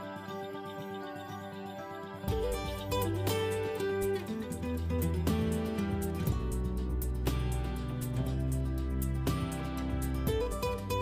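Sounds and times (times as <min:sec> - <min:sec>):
gentle instrumental music: 0:00.0 - 0:11.0
bass line: 0:02.3 - 0:11.0.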